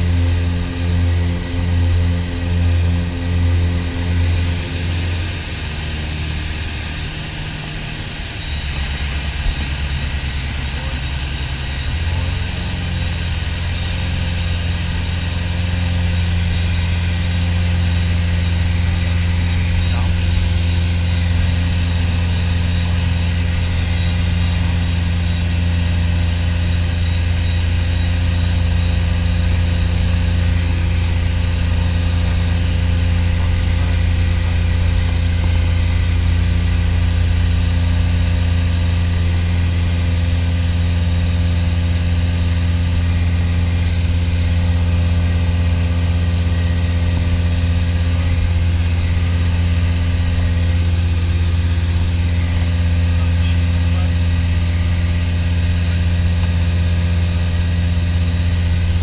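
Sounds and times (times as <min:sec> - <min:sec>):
aircraft engines droning in cockpit: 0:00.0 - 0:59.0.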